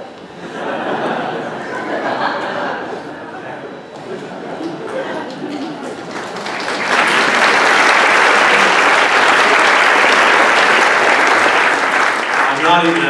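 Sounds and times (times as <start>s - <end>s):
large audience applauding: 4.6s - 13.0s.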